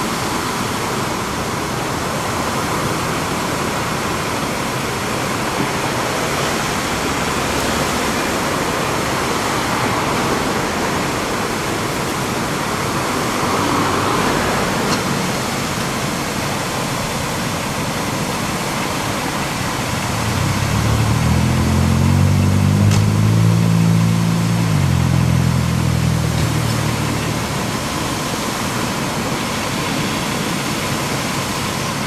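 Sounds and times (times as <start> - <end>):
water gushing from hydrant: 0.0 - 32.0
vehicle engine running: 19.4 - 28.5.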